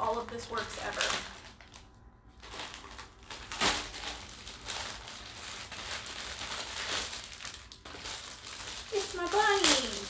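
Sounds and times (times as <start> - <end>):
plastic wrapping crinkling: 0.0 - 10.0.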